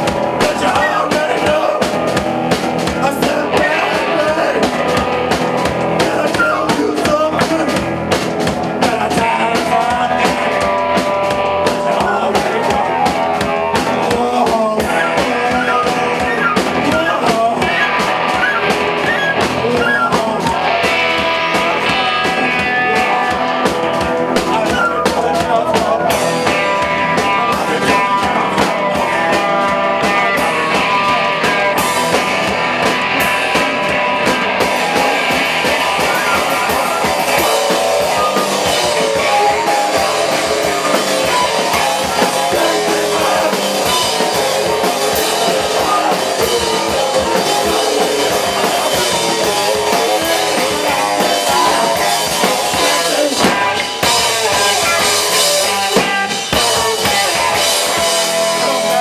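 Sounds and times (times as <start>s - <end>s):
live rock band playing: 0.0s - 59.0s
flute: 14.8s - 20.7s, 24.5s - 26.2s, 35.6s - 49.1s.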